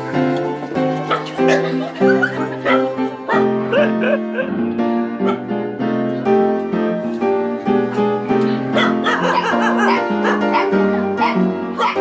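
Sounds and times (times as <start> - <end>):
melody of held notes: 0.0 - 12.0.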